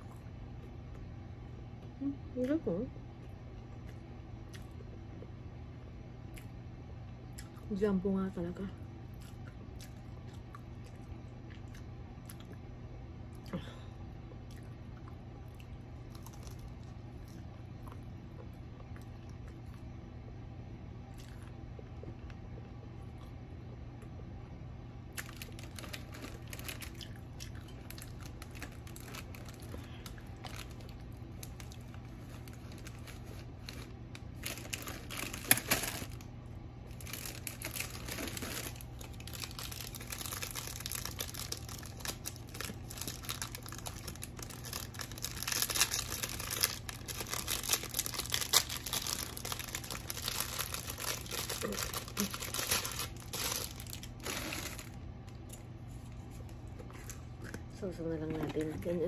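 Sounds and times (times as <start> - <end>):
plastic crinkling and rustling: 25.2 - 36.3, 36.9 - 55.0.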